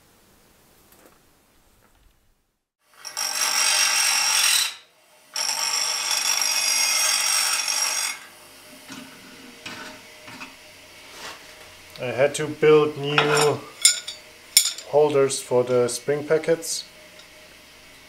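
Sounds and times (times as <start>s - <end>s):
bench grinder grinding metal: 2.9s - 15.8s.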